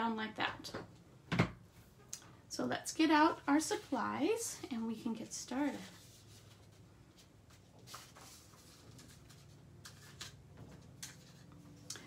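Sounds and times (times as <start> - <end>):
low room hum: 0.0 - 12.0
paper rustling: 5.7 - 11.9.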